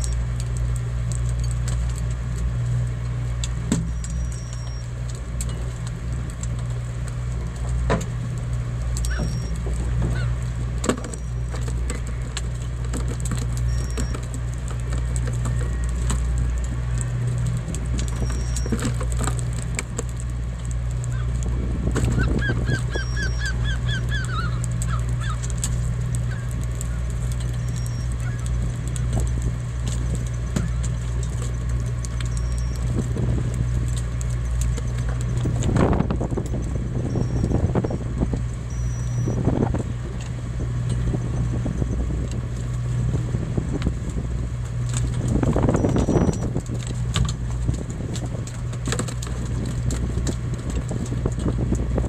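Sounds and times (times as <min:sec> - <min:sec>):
boat engine humming: 0:00.0 - 0:52.0
gulls calling: 0:03.7 - 0:05.0, 0:09.0 - 0:19.5, 0:20.9 - 0:39.6, 0:45.3 - 0:46.6.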